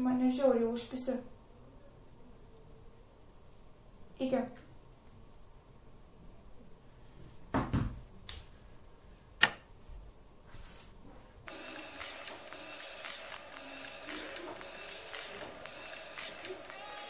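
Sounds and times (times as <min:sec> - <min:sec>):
sharp click: 0:09.4 - 0:09.7.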